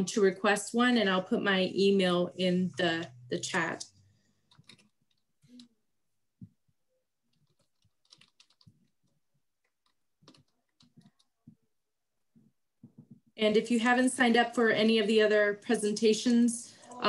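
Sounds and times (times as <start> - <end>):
faint keyboard typing: 3.8 - 5.8, 7.2 - 11.7.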